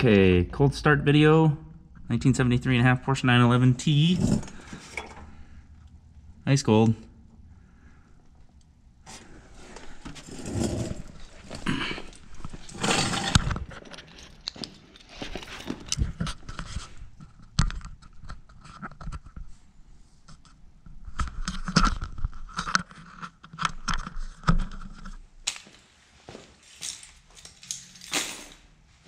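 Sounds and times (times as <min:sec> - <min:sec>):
person moving about: 0:02.6 - 0:05.5, 0:08.4 - 0:17.6, 0:24.0 - 0:29.0.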